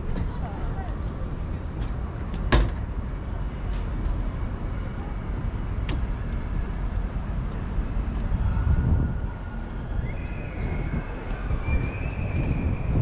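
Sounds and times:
vehicles rumbling: 0.0s - 13.0s.

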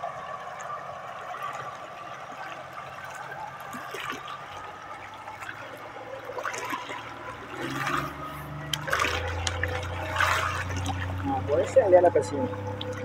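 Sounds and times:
boat motor humming: 0.0s - 13.0s
light water splashes: 0.0s - 13.0s
river water lapping against bank: 0.0s - 13.0s.

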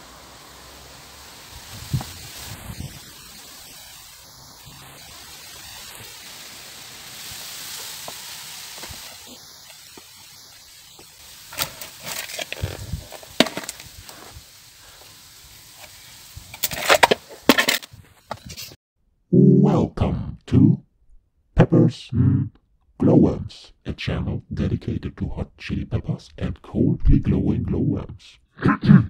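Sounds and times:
leaves rustling and crackling: 0.0s - 18.8s
soft hiss: 0.0s - 18.8s.

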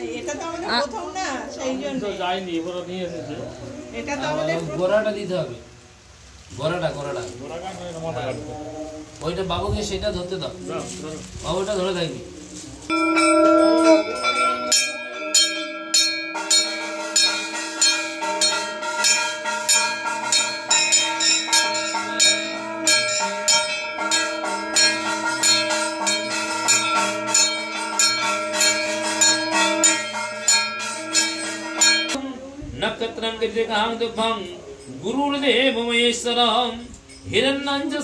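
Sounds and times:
bells ringing fast: 12.9s - 32.2s
long held note: 12.9s - 32.2s.

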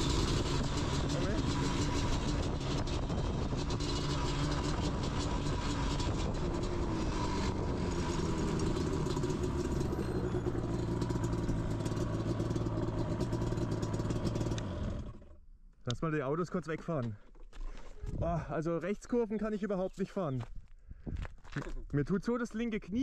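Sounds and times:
two-stroke quad engine running: 0.0s - 15.4s.

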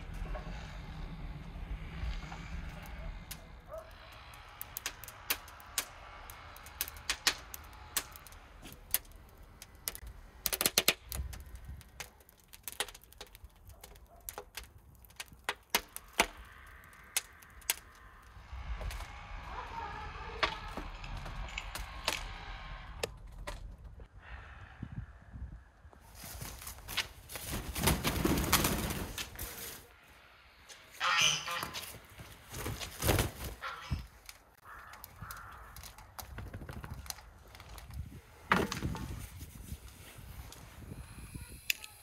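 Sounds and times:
objects clicking and knocking: 4.1s - 18.2s.

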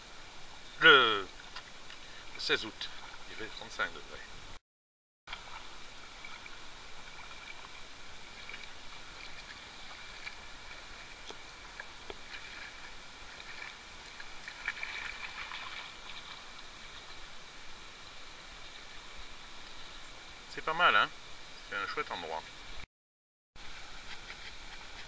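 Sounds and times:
steady outdoor hiss: 0.0s - 4.6s, 5.3s - 22.9s, 23.6s - 25.0s
water dripping: 5.3s - 17.3s
dogs wading in water: 5.3s - 17.5s, 23.6s - 25.0s.

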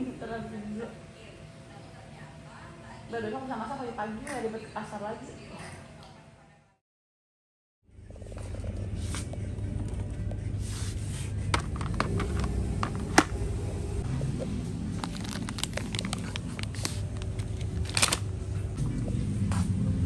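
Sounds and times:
low store hum: 7.9s - 20.0s
items dropped into plastic basket: 11.6s - 13.4s, 15.0s - 18.2s
plastic crinkling: 14.9s - 18.3s.

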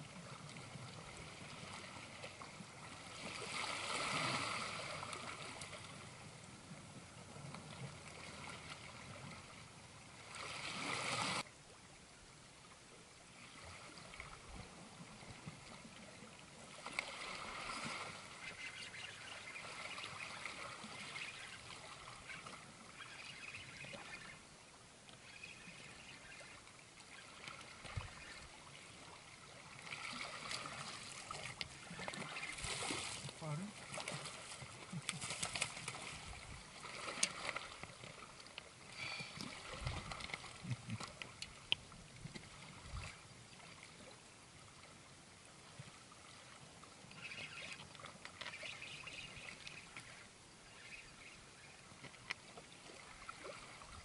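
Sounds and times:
seawater washing over rocks: 29.8s - 38.2s.

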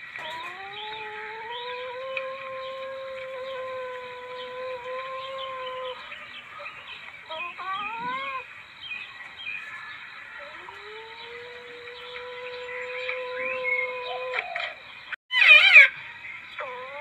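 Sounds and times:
civet calling: 10.4s - 16.0s.

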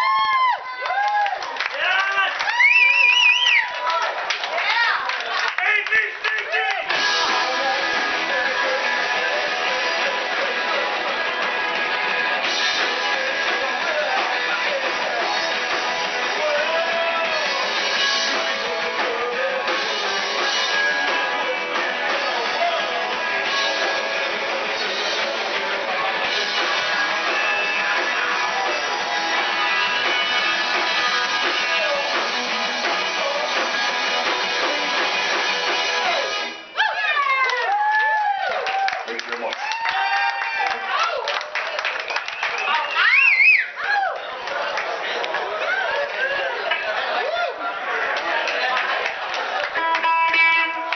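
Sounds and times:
drum kit: 6.7s - 36.7s
electric guitars strumming: 6.8s - 36.7s, 48.6s - 50.9s
man singing into a microphone: 7.2s - 10.8s, 12.8s - 15.5s, 16.2s - 20.1s.

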